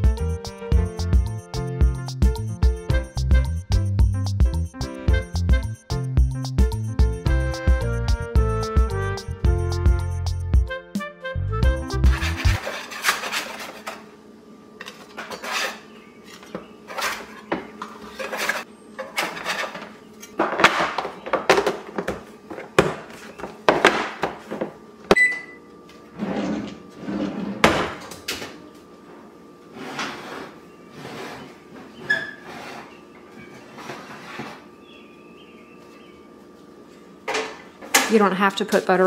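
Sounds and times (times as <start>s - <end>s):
metal spatula scraping baking sheet: 12.0s - 14.1s, 14.9s - 19.9s, 26.2s - 27.6s, 29.7s - 33.0s, 33.7s - 34.6s
oven door opening: 26.2s - 28.6s.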